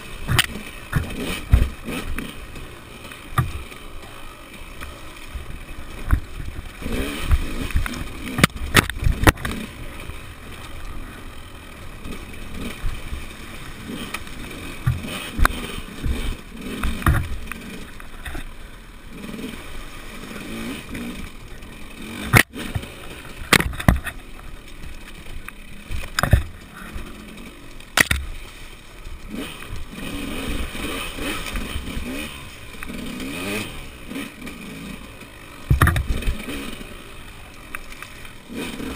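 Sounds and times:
dirt bike engine revving: 0.0 - 38.9
bike knocking on rocks: 0.2 - 2.6, 3.2 - 4.2, 5.9 - 9.6, 14.8 - 18.5, 22.3 - 27.1, 28.0 - 28.4, 35.6 - 36.4.

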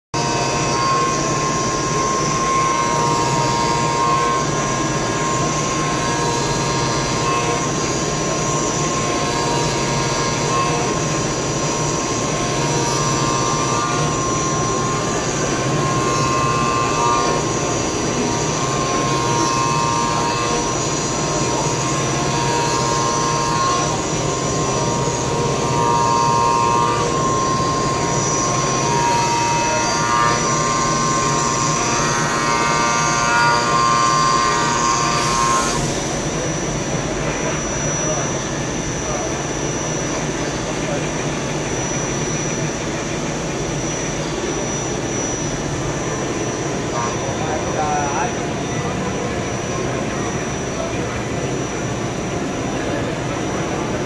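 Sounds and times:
higher cutter tone: 0.2 - 54.0
machining whine: 0.2 - 54.0.

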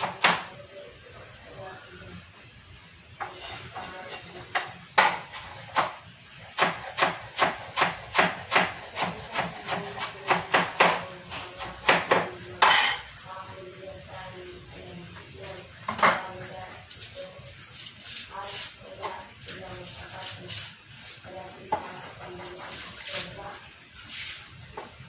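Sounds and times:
knife chopping on wooden board: 6.6 - 11.0.

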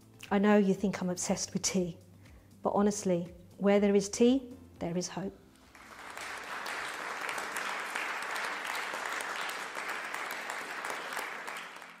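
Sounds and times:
hands clapping: 5.7 - 12.0.

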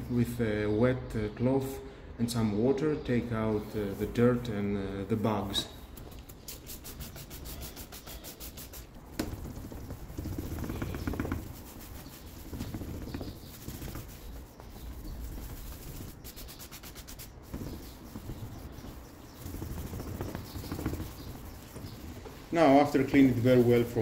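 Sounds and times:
spray bottle spritzing: 5.9 - 9.0
cloth wiping lens: 6.0 - 24.0.

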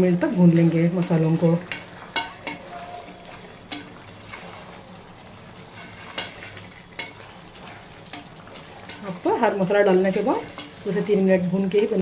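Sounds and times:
curry sizzling in a pot: 0.0 - 12.0
spatula knocking and scraping pot: 1.6 - 2.7, 5.7 - 9.4.

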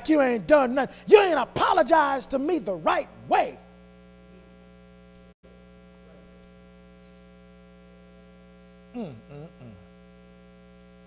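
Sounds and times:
electrical mains hum: 0.0 - 11.0
short vocal sound: 8.9 - 10.0.

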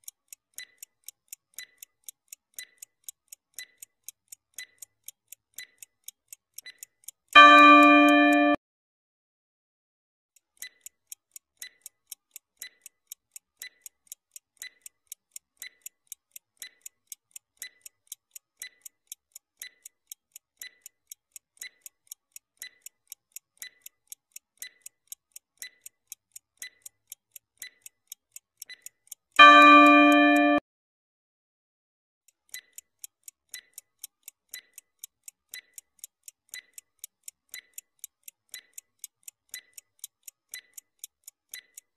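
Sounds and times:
clock ticking rapidly: 0.0 - 8.6, 10.4 - 30.6, 32.3 - 41.9
loud ringing bell tone: 29.4 - 30.6.

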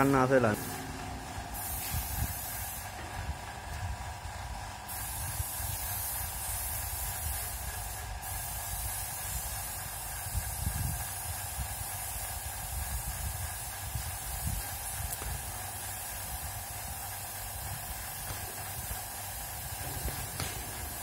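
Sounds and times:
paint spray gun hissing: 0.0 - 21.0.

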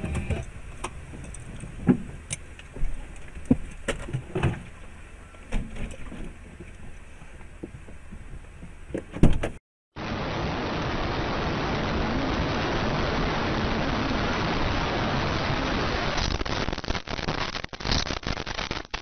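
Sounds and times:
engine and road rumble: 0.0 - 17.7
cab knocks and rattles: 5.5 - 9.6.

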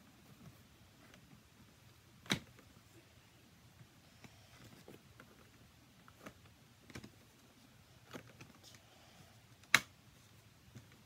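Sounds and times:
plastic parts clicking and knocking: 4.2 - 7.4, 8.0 - 8.8.

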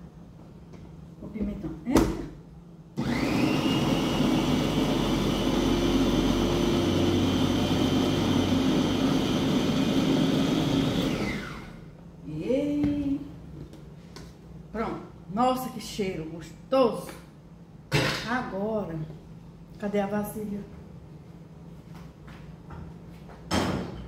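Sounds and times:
electric food chopper running: 3.0 - 11.9.

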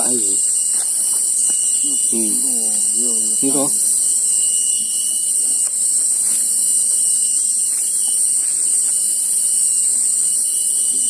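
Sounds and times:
cicadas buzzing: 0.0 - 11.0.

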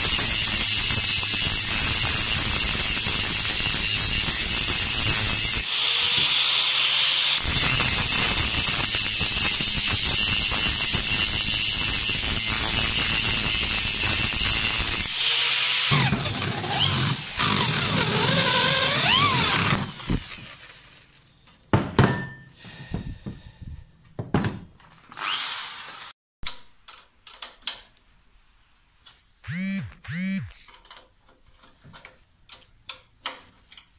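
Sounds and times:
angle grinder grinding steel: 0.0 - 20.8, 29.5 - 30.6
power tool pitch sliding: 15.0 - 20.6, 29.5 - 30.6
spanner clicks and knocks: 26.4 - 27.9.

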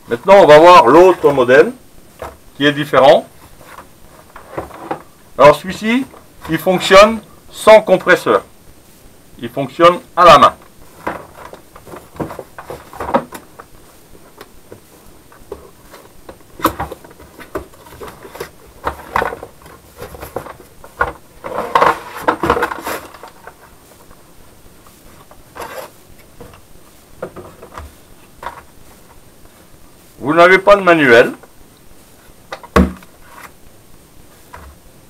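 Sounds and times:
cardboard and packaging rustling: 0.2 - 8.4, 10.4 - 29.8.

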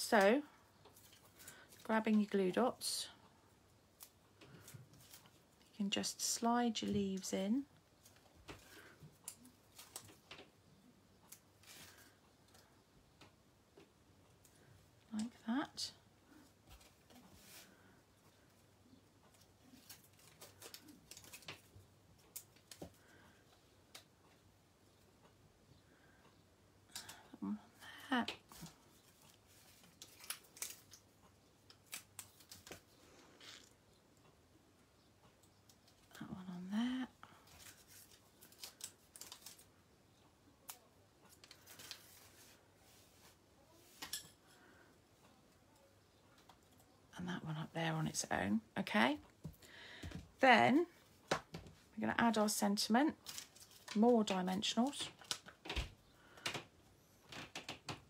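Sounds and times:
soft paper rustle: 11.2 - 12.7, 16.3 - 23.3, 28.4 - 33.7, 37.3 - 39.8, 40.6 - 44.2, 53.0 - 56.4
paper rustle: 28.5 - 31.0, 41.4 - 44.1.

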